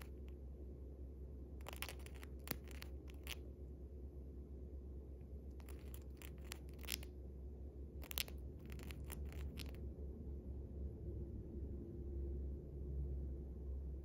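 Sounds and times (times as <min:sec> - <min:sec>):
bird beak grinding clicks: 0:01.6 - 0:03.4, 0:08.0 - 0:09.8.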